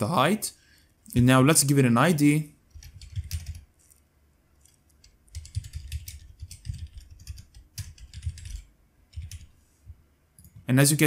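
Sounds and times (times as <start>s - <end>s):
computer keyboard typing: 2.7s - 4.0s, 4.6s - 9.6s.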